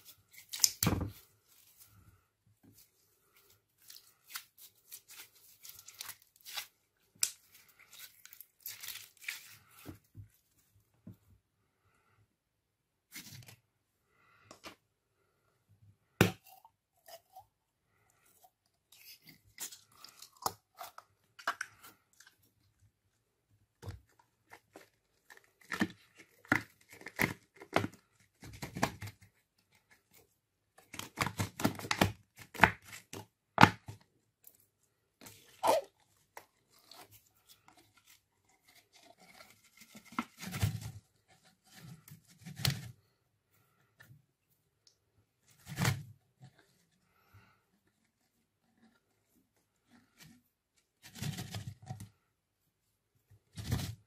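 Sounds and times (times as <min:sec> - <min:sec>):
slime squeezed by hand: 0:35.4 - 0:36.0.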